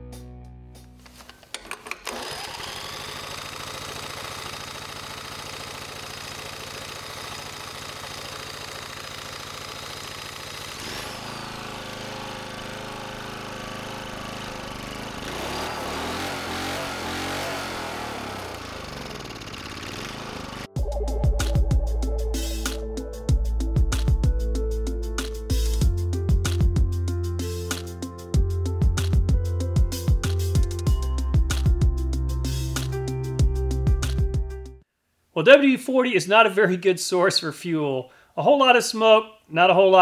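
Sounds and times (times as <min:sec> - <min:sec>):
small gas engine running: 0:01.1 - 0:20.8.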